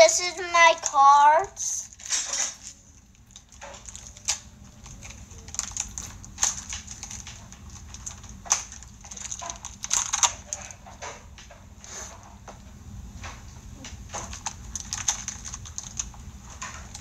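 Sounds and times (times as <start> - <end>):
foil wrapper crinkling: 1.6 - 10.9, 14.2 - 17.0.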